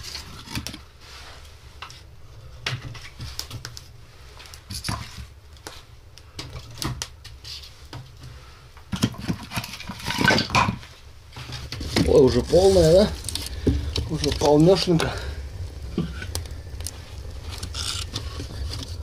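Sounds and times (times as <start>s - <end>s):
low steady rumble: 11.1s - 19.0s.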